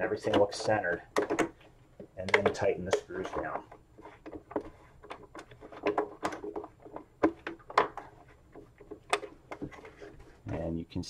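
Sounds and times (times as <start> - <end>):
plastic shell knocks and scrapes: 0.0 - 10.6.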